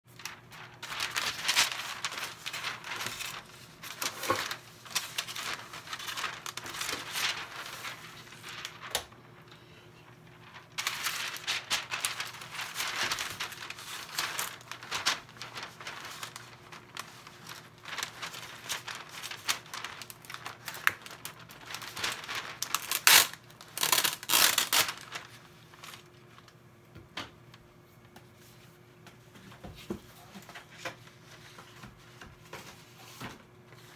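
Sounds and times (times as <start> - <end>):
baking paper crinkling: 0.1 - 26.6.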